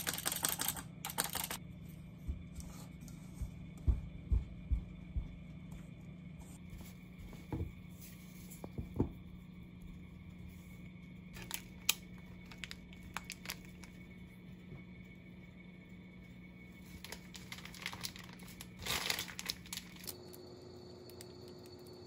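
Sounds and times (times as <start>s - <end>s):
low steady hum: 0.0s - 22.0s
paper rustling: 16.9s - 20.1s.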